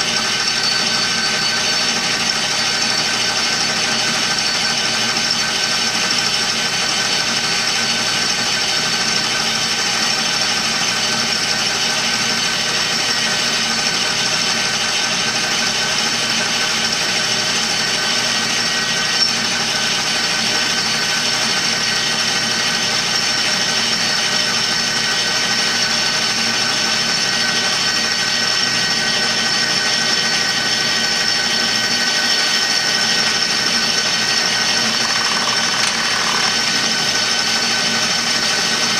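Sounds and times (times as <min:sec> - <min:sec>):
high steady drive tones: 0:00.0 - 0:06.8, 0:34.2 - 0:37.9
metal lathe humming: 0:00.0 - 0:13.2, 0:17.2 - 0:38.8.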